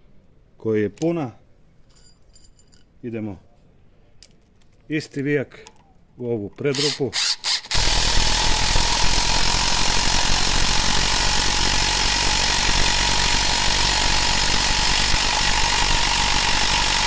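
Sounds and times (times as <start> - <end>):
impact driver hammering: 7.6 - 17.0.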